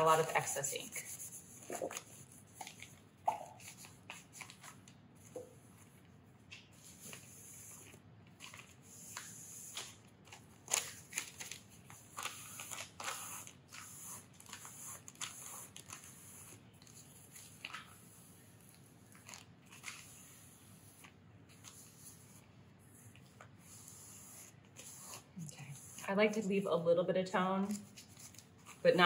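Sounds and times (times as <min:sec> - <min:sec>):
paper rustling and crinkling: 0:01.6 - 0:06.0, 0:06.6 - 0:16.2, 0:16.8 - 0:18.0, 0:18.7 - 0:20.3, 0:27.7 - 0:29.0.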